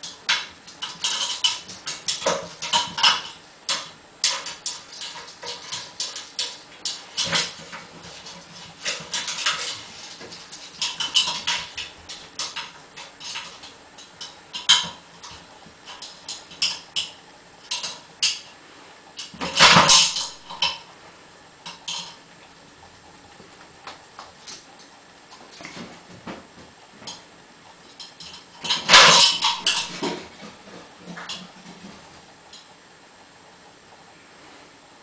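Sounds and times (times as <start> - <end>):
dog claws clicking on metal ladder: 0.0 - 18.5, 19.2 - 20.9, 21.6 - 22.2, 27.8 - 32.7.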